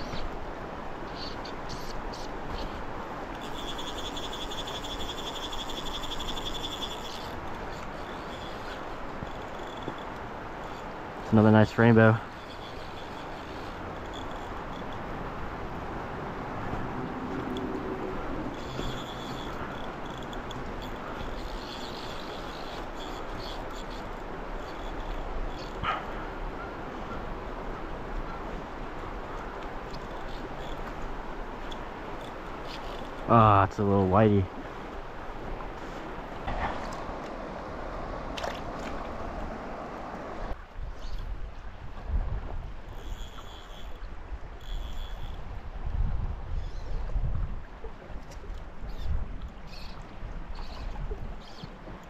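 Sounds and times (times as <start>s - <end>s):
river water rushing: 0.0s - 40.8s
fly reel drag clicking: 3.3s - 11.0s, 12.3s - 15.1s, 18.4s - 26.0s, 29.3s - 33.3s, 44.6s - 45.4s.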